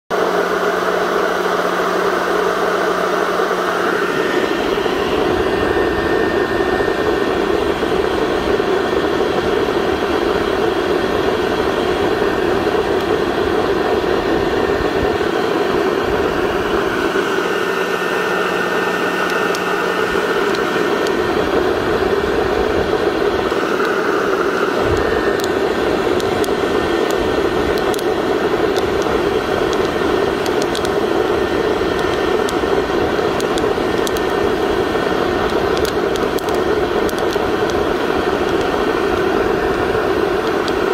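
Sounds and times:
heat gun blowing air: 0.3 - 40.9
coffee beans popping: 33.4 - 34.4.

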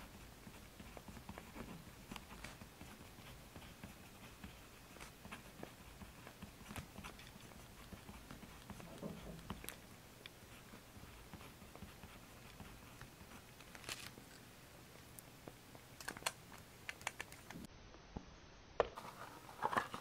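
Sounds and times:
paper rustling and tapping: 0.8 - 9.8, 11.0 - 14.3.

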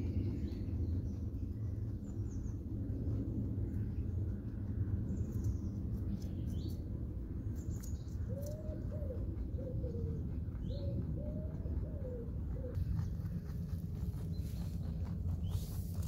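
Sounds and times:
small birds chirping: 0.0 - 16.0
steady low rumble: 0.0 - 16.0
dove cooing: 8.3 - 12.8.

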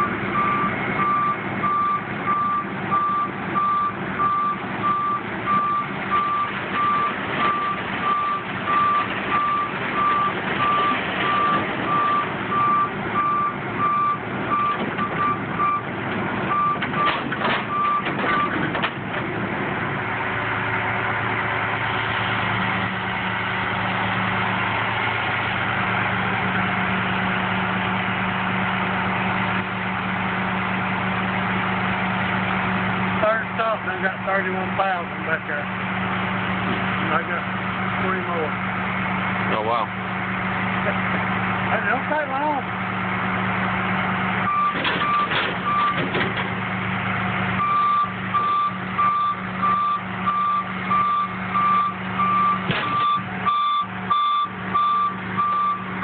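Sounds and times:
truck engine running: 0.0 - 56.0
backup alarm beeping: 44.5 - 46.0, 47.6 - 55.9.

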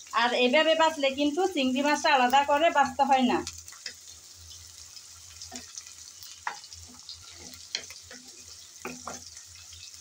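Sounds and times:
food sizzling in a pan: 0.0 - 10.0
wooden spatula scraping a pan: 6.4 - 9.9.

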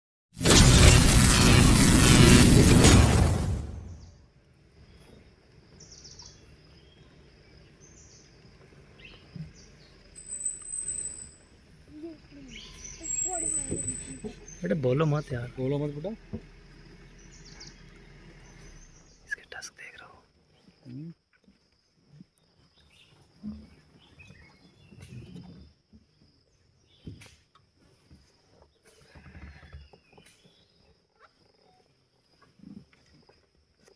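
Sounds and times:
crash sound effect: 0.4 - 4.2
birds and insects chirping: 0.6 - 33.9
bird chirps: 5.8 - 8.4, 9.0 - 11.5, 12.3 - 16.1, 17.0 - 20.1
soft low rustles and thumps: 20.5 - 30.8.

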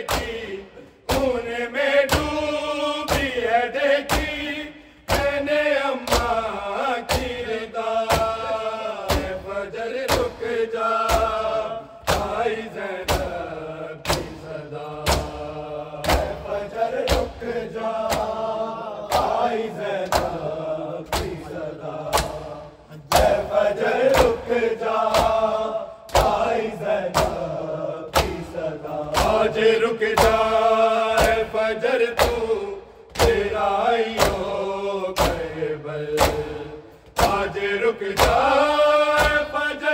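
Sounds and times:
men chanting: 0.0 - 39.9
hands striking bare chests: 21.1 - 21.5, 36.2 - 36.6.

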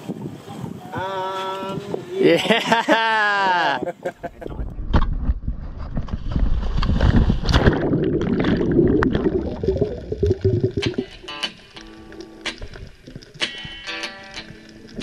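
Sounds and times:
underwater bubbling rushing water: 6.0 - 13.8
splash into water: 6.6 - 11.3.

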